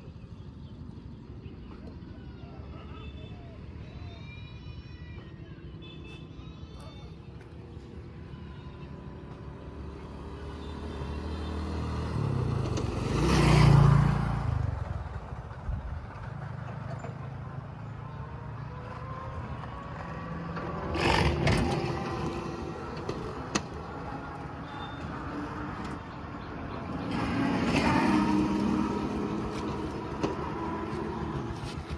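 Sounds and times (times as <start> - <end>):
engine passing by: 6.6 - 31.9.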